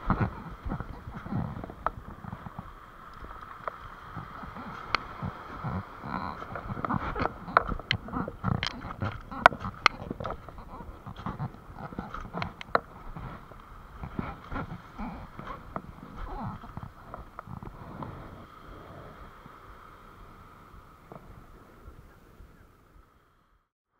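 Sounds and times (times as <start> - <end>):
footsteps on pebbles: 6.1 - 17.4.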